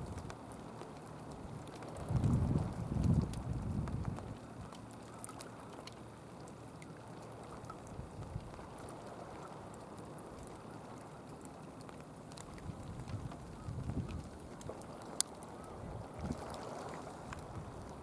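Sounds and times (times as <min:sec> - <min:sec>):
sea water lapping: 0:04.2 - 0:18.0.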